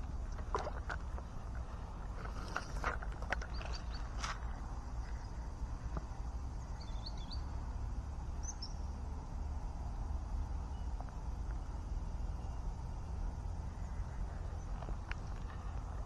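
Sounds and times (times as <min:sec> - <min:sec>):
steady low rumble: 0:00.0 - 0:16.0
high bird chirps: 0:06.7 - 0:07.6.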